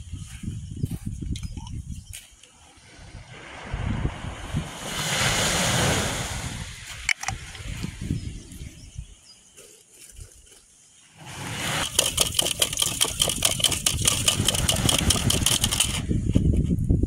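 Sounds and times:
potatoes rattling in a metal pot: 0:11.9 - 0:16.0.

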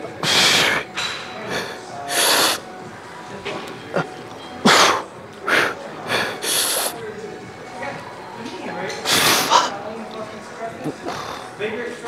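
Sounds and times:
man breathing hard: 0:01.5 - 0:02.6, 0:04.7 - 0:07.0.

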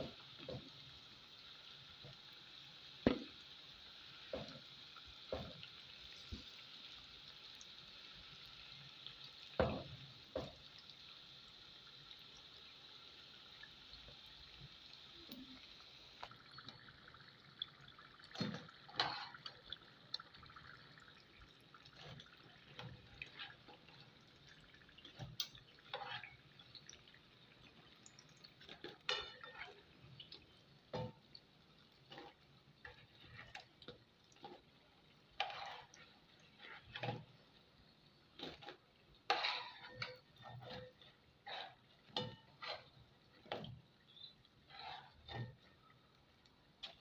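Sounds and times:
deep-frying sizzle in hot oil: 0:00.0 - 0:47.0
metal spoon scraping a pan: 0:18.4 - 0:19.6, 0:21.8 - 0:26.9, 0:28.5 - 0:30.1, 0:31.9 - 0:37.6, 0:38.4 - 0:47.0.

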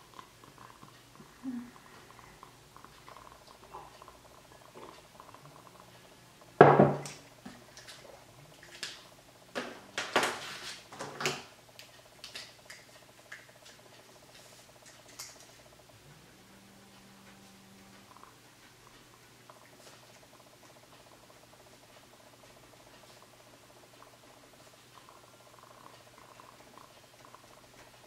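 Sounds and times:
mug knocking on table: 0:06.6 - 0:07.0.

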